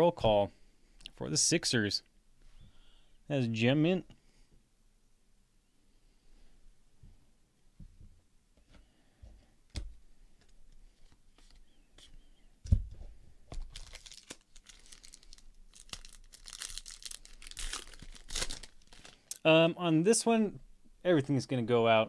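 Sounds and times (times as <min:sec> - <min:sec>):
foil wrapper tearing and crinkling: 0:13.7 - 0:19.3.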